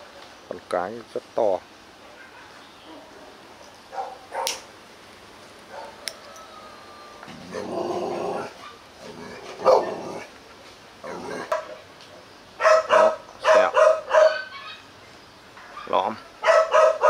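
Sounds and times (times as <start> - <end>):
dog barking: 3.9 - 4.6, 5.7 - 6.0, 9.6 - 9.9, 12.6 - 14.8, 15.7 - 17.0
dog growling: 7.3 - 10.3, 11.0 - 11.6.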